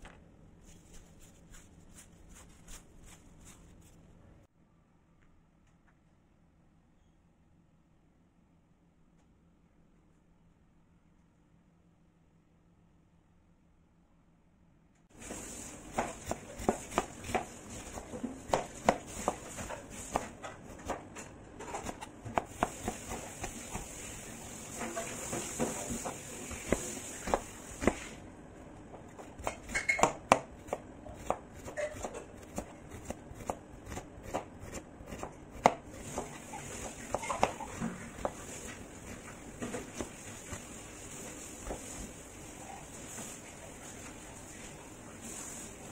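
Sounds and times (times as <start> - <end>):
knife dicing on cutting board: 29.2 - 38.5.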